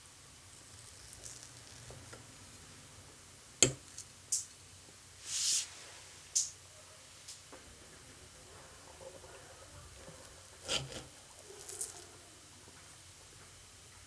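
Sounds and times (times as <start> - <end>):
brief hiss: 5.2 - 6.6.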